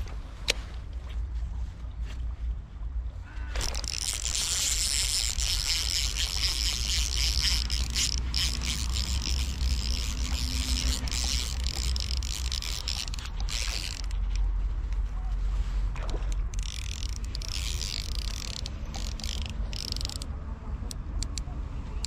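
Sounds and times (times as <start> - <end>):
fishing reel whirring ratchet: 3.6 - 14.4, 16.4 - 20.3.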